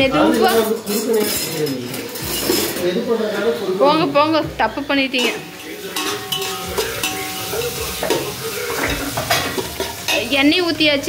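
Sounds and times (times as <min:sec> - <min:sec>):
metal spoon scraping a pot: 0:00.4 - 0:02.9, 0:05.2 - 0:10.3
onions sizzling in hot oil: 0:02.2 - 0:11.0.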